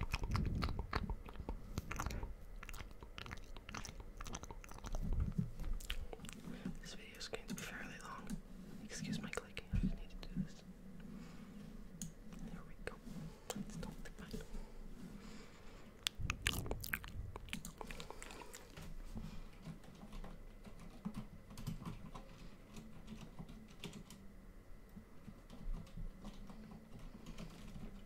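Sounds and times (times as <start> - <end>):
computer keyboard typing: 19.6 - 24.2, 25.2 - 28.0.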